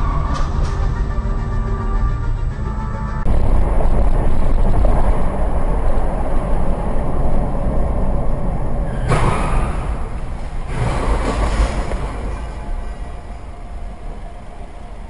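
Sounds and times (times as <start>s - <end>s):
road vehicle rumble: 0.0s - 15.0s
loud rushing noise: 3.2s - 13.5s.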